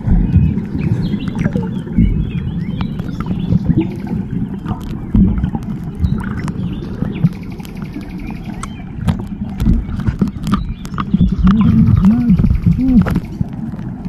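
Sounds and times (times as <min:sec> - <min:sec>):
muffled underwater water rumble: 0:00.0 - 0:14.0
scattered clicks: 0:06.3 - 0:14.0.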